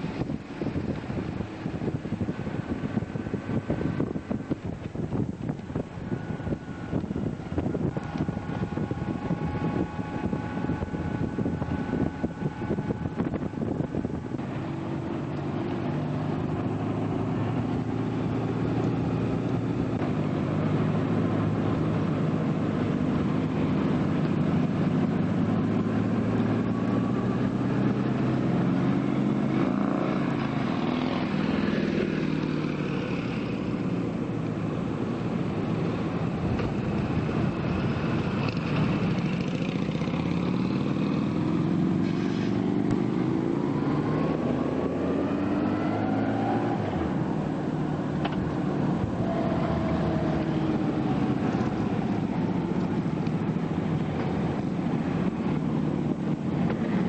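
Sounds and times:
motorcycle engine running: 0:00.0 - 0:43.6
wind rushing over microphone: 0:00.0 - 0:57.0.

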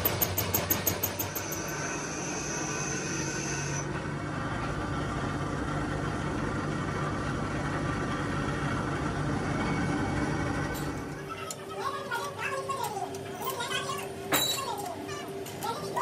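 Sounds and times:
milling machine humming: 0:00.0 - 0:14.3
thin high whine: 0:00.7 - 0:03.9.

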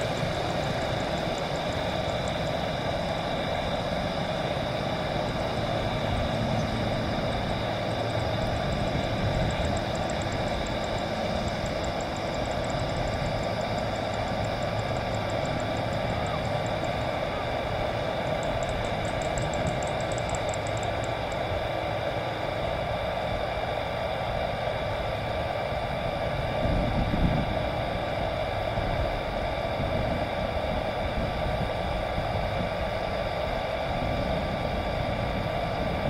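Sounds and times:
fast high-pitched ticking: 0:00.0 - 0:21.6
jet engines whining: 0:00.0 - 0:36.0.

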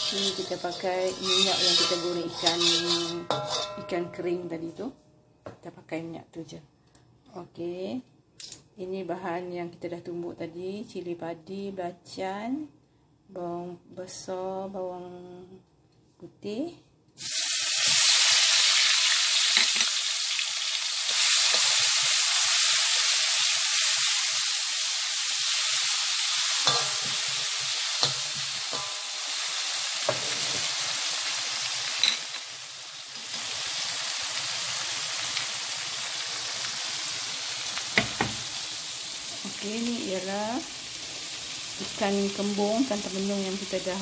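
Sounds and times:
paste sizzling in hot oil: 0:00.0 - 0:03.7, 0:17.2 - 0:43.8
metal spatula scraping a wok: 0:00.0 - 0:04.2, 0:25.7 - 0:30.9.

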